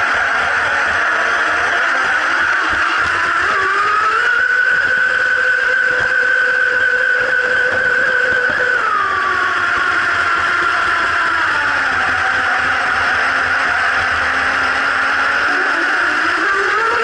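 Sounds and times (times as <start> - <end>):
model boat motor whining: 0.0 - 17.0.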